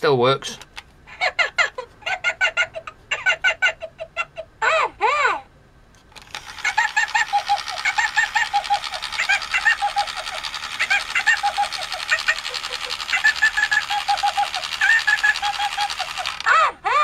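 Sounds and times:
toy giggling from small speaker: 1.1 - 5.5, 6.2 - 17.0
vibration motor buzzing and rattling: 6.1 - 16.6.

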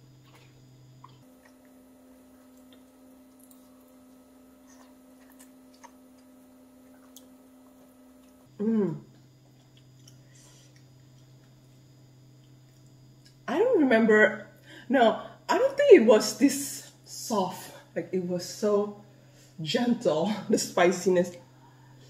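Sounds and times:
steady low hum: 0.0 - 22.0
person saying mmm: 8.6 - 9.1.

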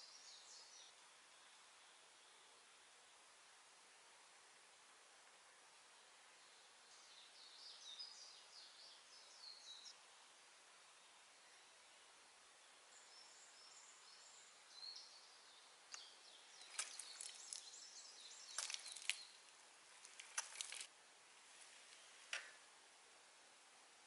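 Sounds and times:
faint high bird chirps: 0.0 - 2.6, 6.4 - 10.0, 10.9 - 19.4
dry crackling clicks and rustles: 15.9 - 20.9.

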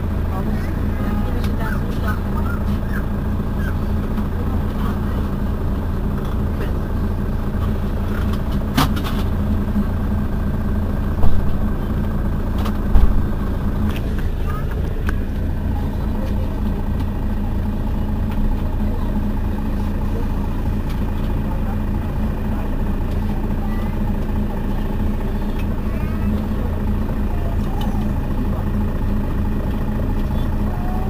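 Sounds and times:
bus engine idling: 0.0 - 31.0.

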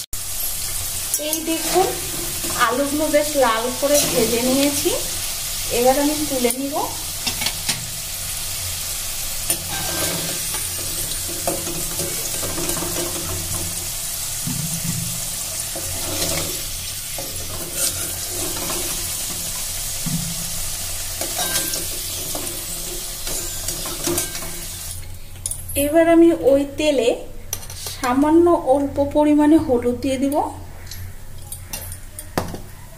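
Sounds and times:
potatoes sizzling in oil: 0.0 - 25.1
metal spoon scraping pan: 1.1 - 4.9, 9.5 - 13.8, 14.5 - 19.8, 21.2 - 24.9.

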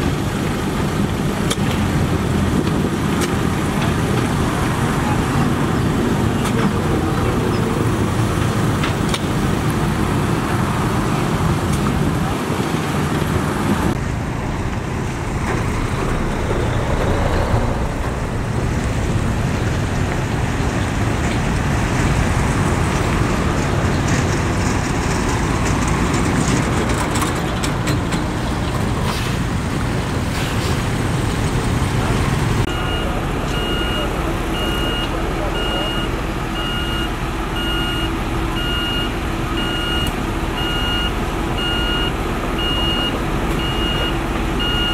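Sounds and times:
heavy machine diesel engines rumbling: 0.0 - 44.9
road traffic: 0.0 - 44.9.

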